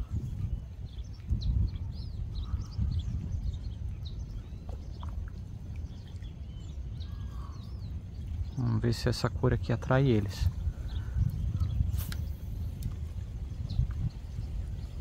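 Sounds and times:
faint bird chirps: 0.0s - 8.8s.

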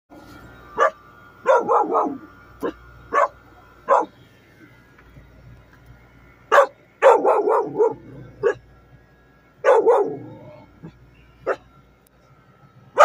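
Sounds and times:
dogs barking: 0.8s - 4.2s, 6.5s - 8.7s, 9.6s - 11.7s.

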